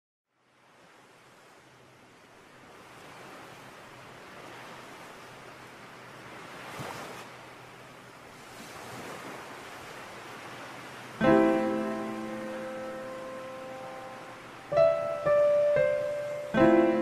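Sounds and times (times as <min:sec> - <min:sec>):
small waves washing onto beach: 0:00.3 - 0:17.0
piano chord ringing: 0:11.2 - 0:17.0.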